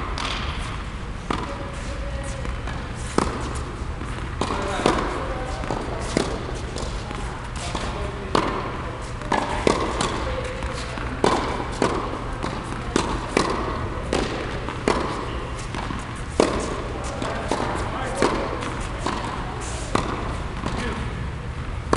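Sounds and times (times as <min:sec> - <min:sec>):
tennis balls struck and bouncing: 0:00.0 - 0:21.0
steady low hum: 0:00.0 - 0:21.9.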